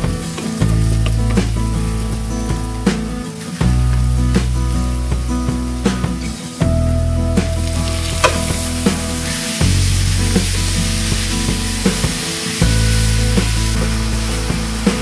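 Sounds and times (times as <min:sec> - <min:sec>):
meat sizzling in a wok: 0:06.8 - 0:15.0.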